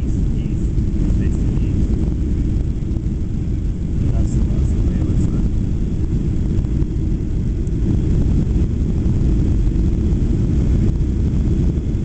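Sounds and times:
airplane cabin engine rumble: 0.0s - 12.0s.

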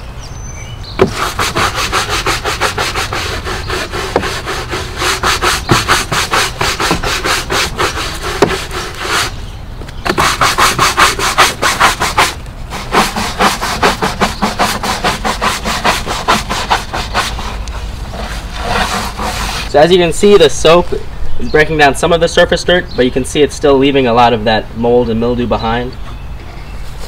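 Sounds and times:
brush scrubbing wood: 1.0s - 20.0s.

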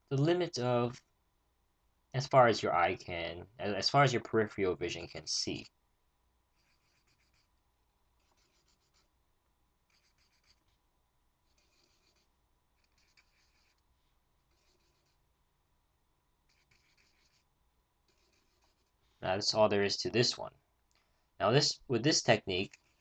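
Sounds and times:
pencil scratching on paper: 6.5s - 7.6s, 8.2s - 9.1s, 9.9s - 10.8s, 11.4s - 15.3s, 16.4s - 19.2s, 22.4s - 23.0s.

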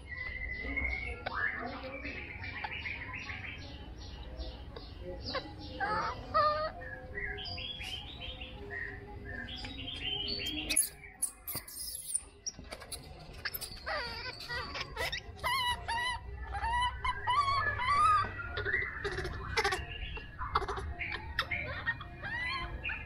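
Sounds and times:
baby monkey high wavering calls: 5.2s - 7.3s, 10.6s - 23.0s.

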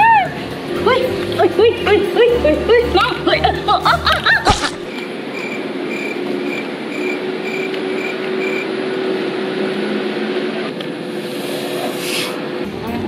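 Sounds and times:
cricket chirping: 4.9s - 8.8s.

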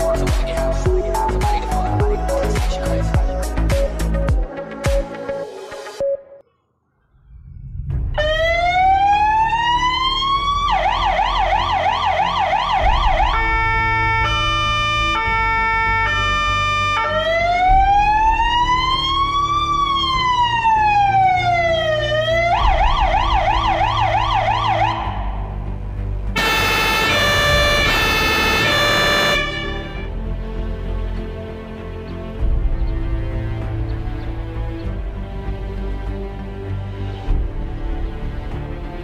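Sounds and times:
music with heavy bass line: 0.0s - 5.8s
fire truck siren wailing and yelping: 8.2s - 25.5s, 26.4s - 30.1s
loud truck horn: 13.3s - 17.3s, 26.4s - 30.2s.

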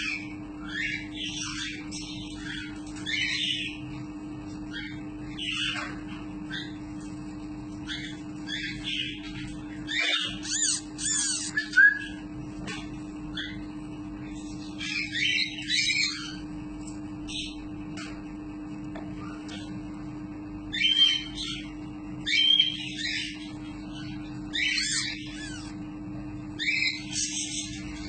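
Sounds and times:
steady low hum: 0.0s - 28.0s
parrot chick begging calls: 9.9s - 11.8s, 24.5s - 25.8s.

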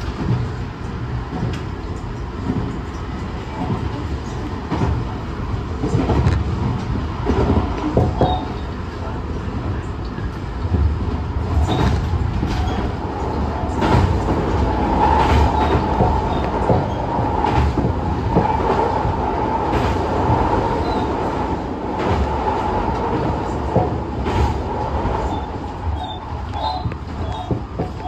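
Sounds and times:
train rumble from inside: 0.0s - 28.0s
wheels clicking over rail joints: 10.1s - 28.0s.

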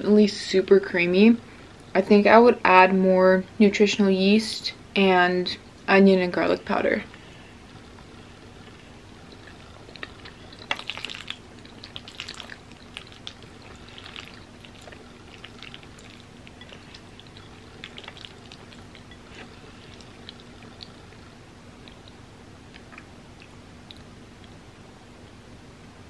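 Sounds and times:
wet chewing mouth sounds: 7.1s - 24.6s.

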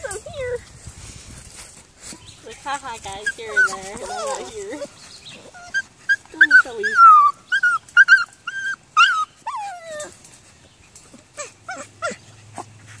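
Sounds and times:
puppies whining and yipping: 0.0s - 0.6s, 2.6s - 13.0s.

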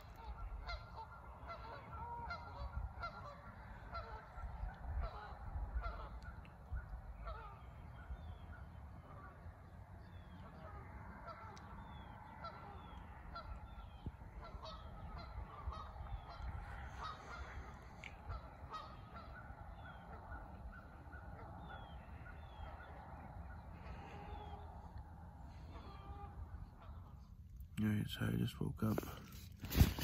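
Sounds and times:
birds calling: 0.0s - 30.0s
faint low rumble: 0.0s - 30.0s.

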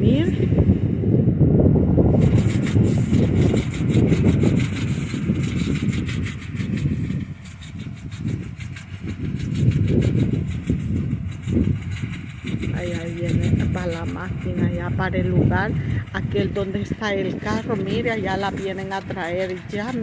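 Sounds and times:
harvester engine rumbling: 0.0s - 20.0s
fast regular clicking: 2.2s - 14.6s, 17.0s - 20.0s.

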